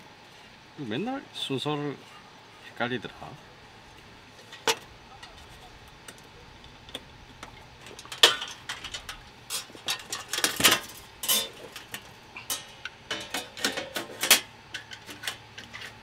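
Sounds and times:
metal clicks and clinks: 6.9 - 16.0.

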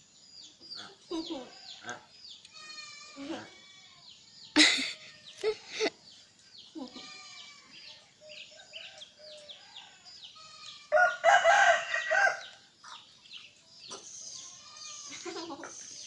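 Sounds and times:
small birds chirping: 0.0 - 16.0
rooster crowing: 10.9 - 12.6.

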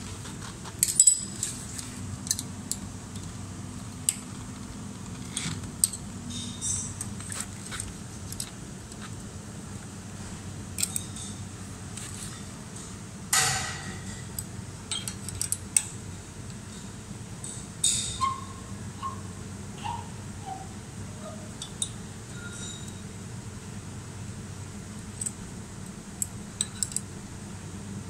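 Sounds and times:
steady low hum: 0.0 - 28.0
allen key clinking on metal: 0.8 - 1.6, 10.8 - 11.4, 13.4 - 15.9, 26.2 - 27.1.

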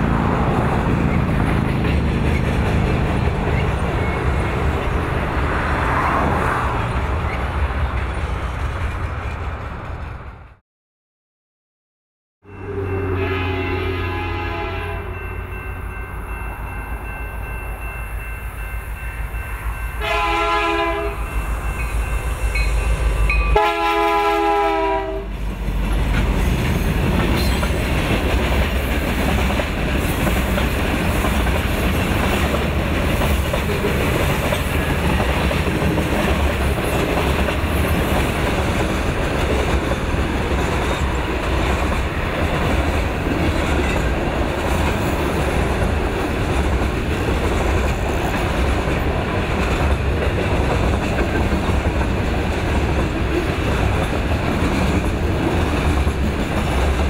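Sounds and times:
freight cars rolling on rails: 0.0 - 10.5, 25.0 - 57.0
train rumble: 0.0 - 10.6, 12.5 - 57.0
locomotive horn blasts: 12.5 - 15.4, 20.0 - 21.3, 22.6 - 25.4.

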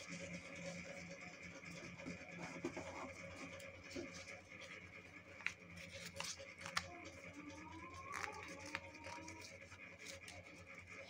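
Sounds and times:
paper rustling and creasing: 2.2 - 10.7
paper crinkles: 3.0 - 11.0.

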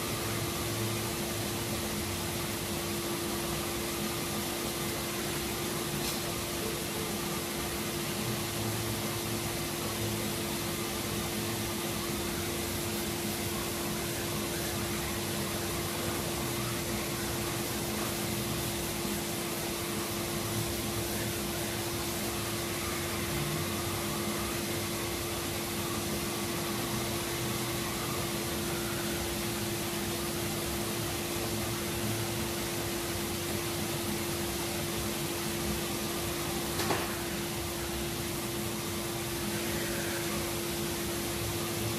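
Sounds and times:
machine humming: 0.0 - 41.9.

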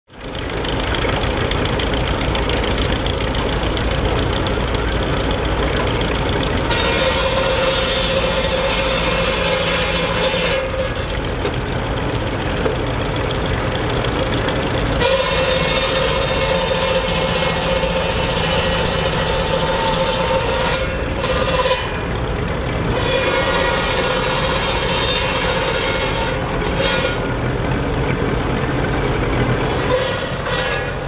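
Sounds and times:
tractor engine running: 0.0 - 31.0
saw blade rasping through log: 6.6 - 11.2, 15.0 - 22.1, 22.9 - 27.4, 29.7 - 31.0.

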